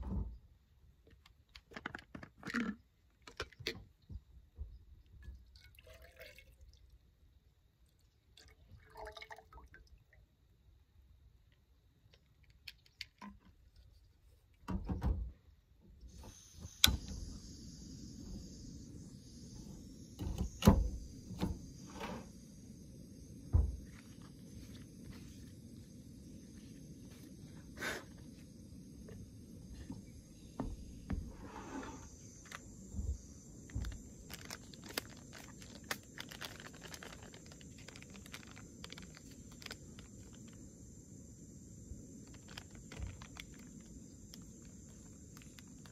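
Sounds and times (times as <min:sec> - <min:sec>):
gas hissing: 0:16.0 - 0:36.2, 0:37.4 - 0:45.9
burner burning with hiss: 0:16.0 - 0:45.9
paper sachet crackling: 0:33.8 - 0:40.6, 0:42.2 - 0:45.9.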